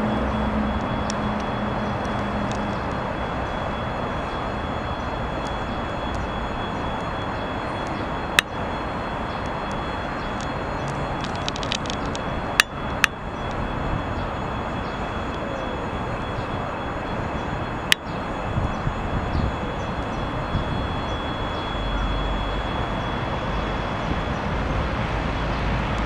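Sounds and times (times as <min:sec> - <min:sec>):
diesel locomotive rumble: 0:00.0 - 0:26.0
sharp clicks: 0:09.3 - 0:13.6.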